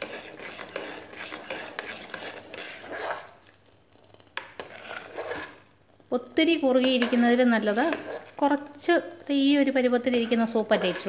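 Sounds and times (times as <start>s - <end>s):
ladle clinking and scraping pot: 0.0s - 5.7s, 6.8s - 8.4s, 10.0s - 11.0s.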